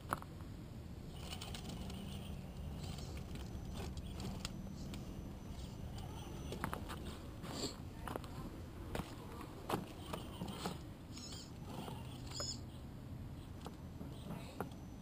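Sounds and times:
light clicks of tires on stones: 0:00.0 - 0:00.5, 0:01.1 - 0:12.6
high gear whine: 0:00.0 - 0:15.0
electric motor and gears whirring: 0:01.0 - 0:07.7, 0:09.2 - 0:12.7.

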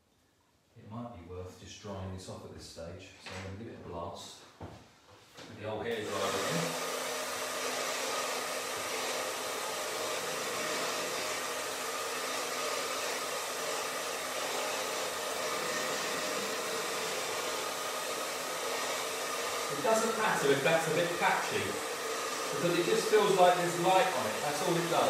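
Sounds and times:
hairdryer blowing: 0:06.0 - 0:25.0.

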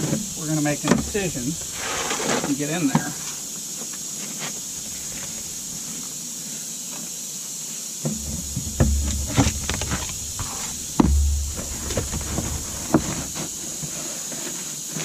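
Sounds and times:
steady hiss: 0:00.0 - 0:15.0
tar paper scraping and rustling: 0:01.0 - 0:03.4, 0:08.2 - 0:15.0
low rumbles: 0:08.1 - 0:13.4.

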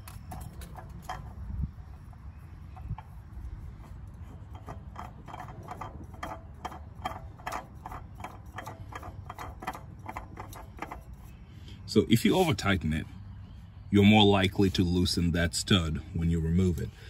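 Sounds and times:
oil filter ticking: 0:00.0 - 0:11.8.

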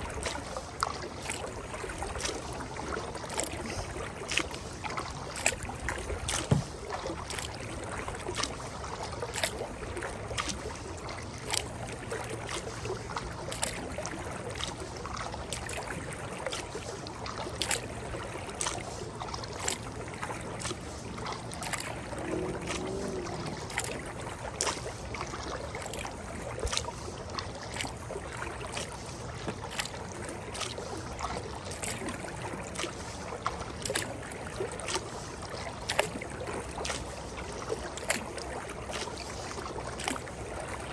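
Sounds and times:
paddle splashing in water: 0:00.0 - 0:40.9
rushing river water: 0:00.0 - 0:40.9.

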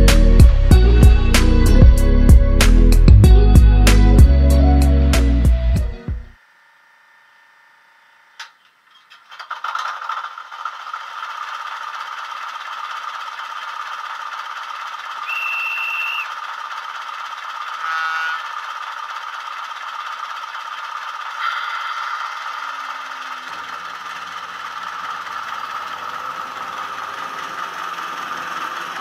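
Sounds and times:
diesel engine starting and idling: 0:00.0 - 0:06.2, 0:09.2 - 0:29.0
short loud engine burst: 0:09.4 - 0:19.2
steady high tone: 0:15.2 - 0:16.3, 0:17.8 - 0:18.5.

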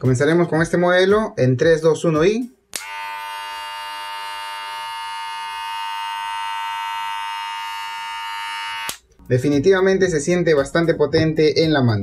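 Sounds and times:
hair clipper motor humming: 0:02.8 - 0:09.0.

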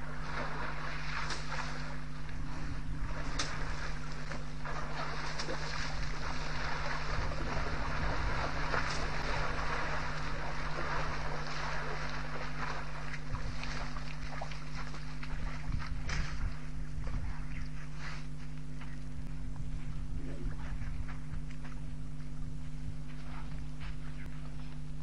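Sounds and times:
elephants sloshing through water: 0:00.0 - 0:18.4
low electrical hum: 0:00.0 - 0:25.0
wind noise on microphone: 0:05.8 - 0:11.3, 0:14.7 - 0:18.0, 0:19.1 - 0:24.2.

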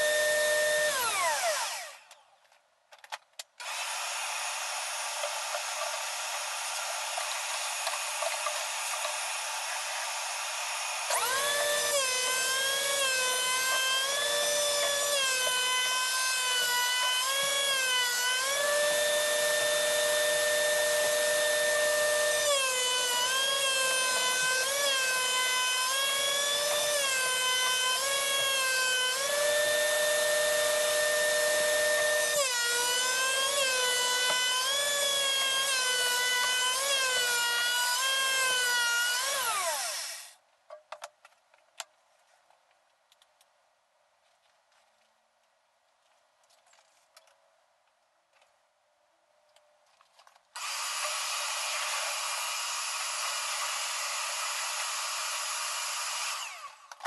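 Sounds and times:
thickness planer whining: 0:00.0 - 0:02.2, 0:03.6 - 0:40.4, 0:50.6 - 0:57.0.

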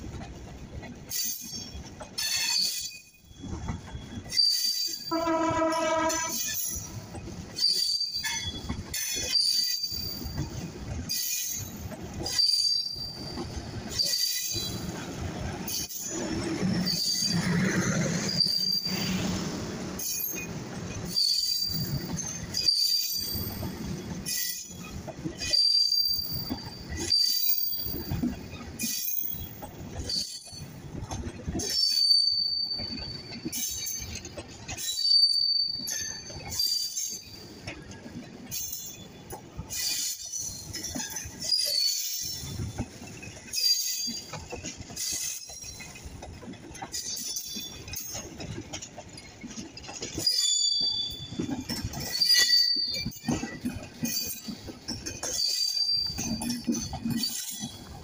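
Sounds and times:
high-pitched wheel squeals: 0:01.2 - 0:11.6, 0:16.5 - 0:19.4, 0:20.0 - 0:24.8, 0:31.7 - 0:34.1, 0:34.8 - 0:37.1, 0:50.1 - 0:54.6, 0:55.2 - 0:57.9
train horn: 0:05.1 - 0:06.6.

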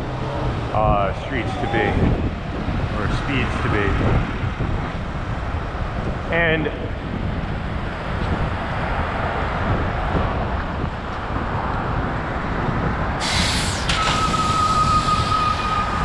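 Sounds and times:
bicycle road and wind noise: 0:00.0 - 0:16.0
air hissing: 0:13.2 - 0:16.0
high-pitched squeal: 0:13.2 - 0:16.0.

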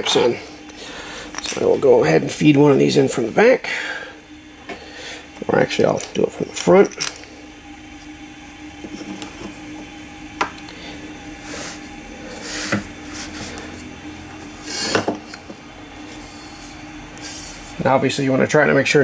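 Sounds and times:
steady machine hum: 0:00.0 - 0:19.0.

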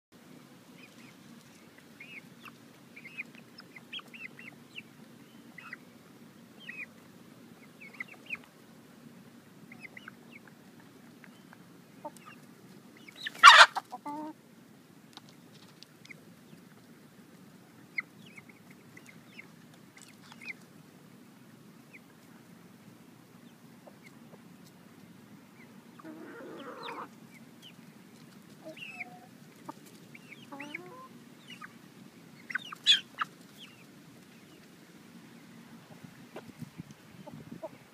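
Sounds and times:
hens clucking: 0:00.7 - 0:05.9, 0:06.6 - 0:14.4, 0:23.4 - 0:24.7, 0:25.6 - 0:34.7, 0:35.7 - 0:37.9.

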